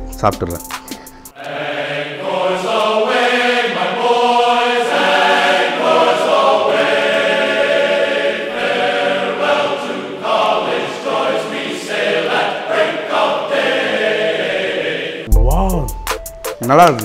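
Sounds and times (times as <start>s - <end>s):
choir singing held chords: 1.2s - 15.4s.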